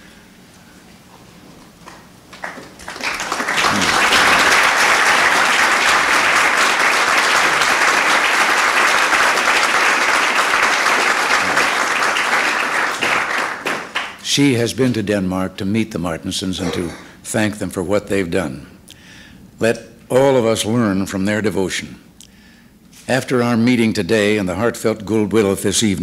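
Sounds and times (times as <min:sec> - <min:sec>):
audience applauding: 0:01.9 - 0:14.2.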